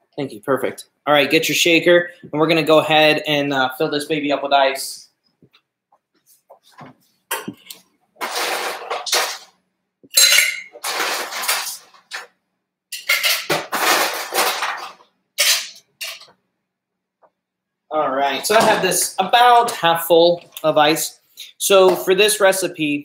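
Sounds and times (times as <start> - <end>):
ice cubes clattering into metal tin: 8.2 - 9.5, 10.2 - 12.2, 13.0 - 16.2.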